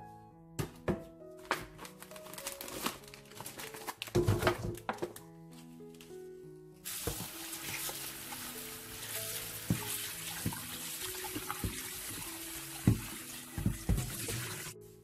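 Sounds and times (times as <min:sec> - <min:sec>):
tap water splashing into bowl: 0:09.7 - 0:12.2, 0:12.8 - 0:14.6.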